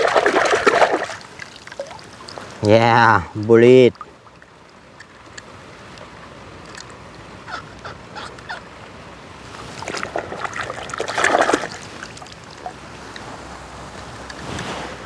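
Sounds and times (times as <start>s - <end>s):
toy car splashing in muddy water: 0.0s - 1.4s, 9.8s - 12.4s.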